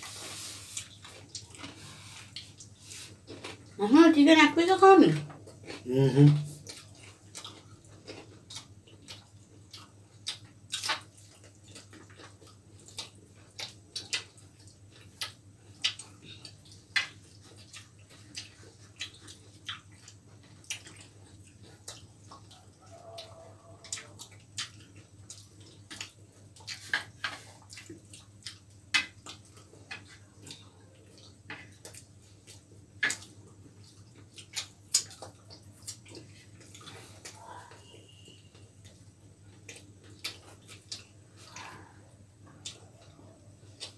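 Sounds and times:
chewing and lip smacks: 0.6 - 3.8, 5.2 - 43.9.

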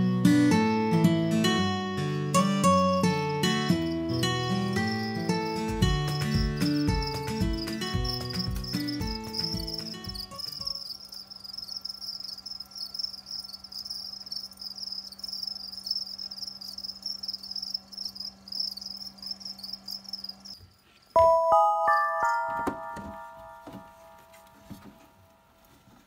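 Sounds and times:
background music: 0.0 - 10.7, 21.2 - 25.5
crickets chirping: 2.4 - 21.2.

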